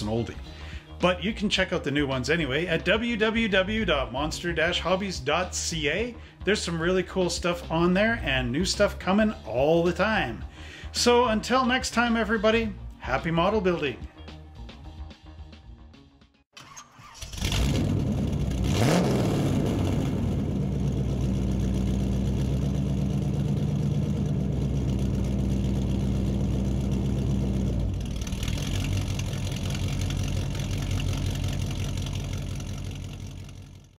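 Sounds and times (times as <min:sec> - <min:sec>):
car engine revving and idling: 0:17.2 - 0:34.0.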